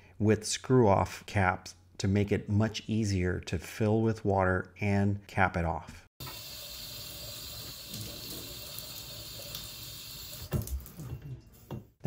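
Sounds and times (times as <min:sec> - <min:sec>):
water stream into copper pipe: 0:06.2 - 0:11.2.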